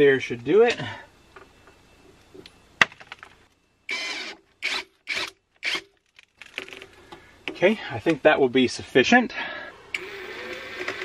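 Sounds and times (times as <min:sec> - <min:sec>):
cordless drill driving screw: 0:03.9 - 0:05.9, 0:09.9 - 0:11.0.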